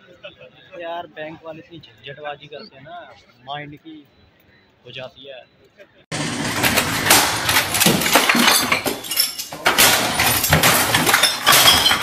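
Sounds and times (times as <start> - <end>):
plastic and glass breaking: 6.2 - 12.0
stick smashing computer: 6.4 - 12.0.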